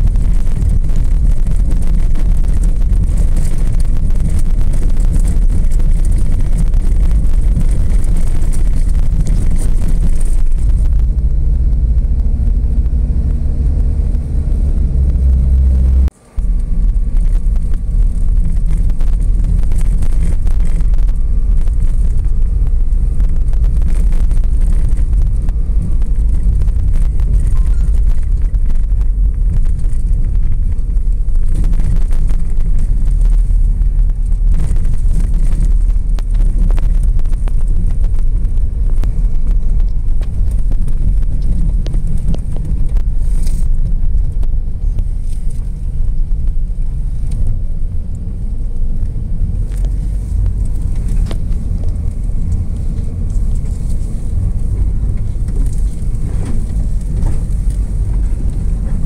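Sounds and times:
car driving on snow: 0.0 - 59.0.

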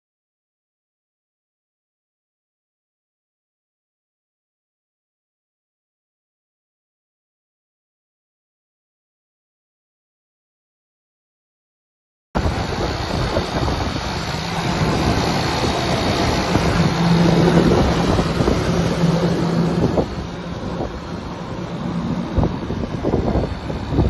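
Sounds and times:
wind buffeting microphone: 12.4 - 24.0.

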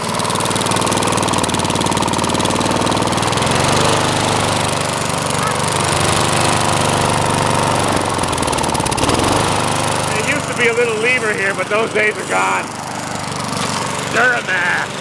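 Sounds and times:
lawn mower engine running: 0.0 - 15.0.

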